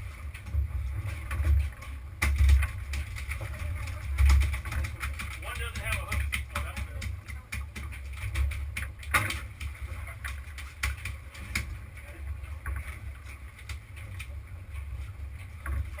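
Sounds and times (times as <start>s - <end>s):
irregular knocks and clicks: 0.4s - 11.9s.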